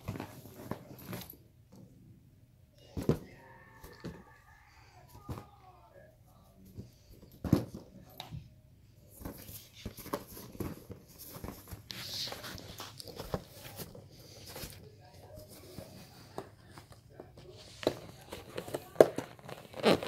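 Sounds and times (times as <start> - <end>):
balloons thumping and rubbing: 17.7 - 20.0.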